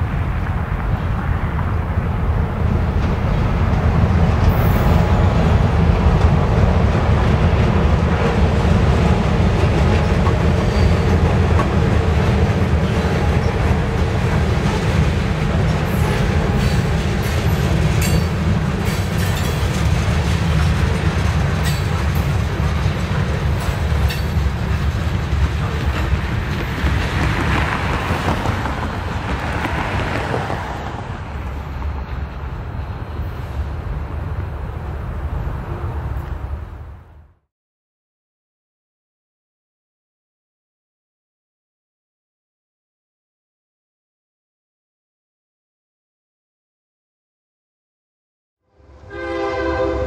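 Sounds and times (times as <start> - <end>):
train wheels rumbling on rail: 0.0 - 37.2.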